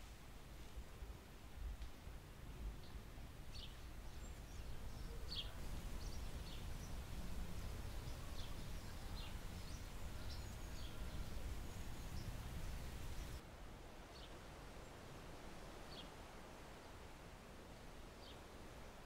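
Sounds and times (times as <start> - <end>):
low steady rumble: 0.6 - 13.4.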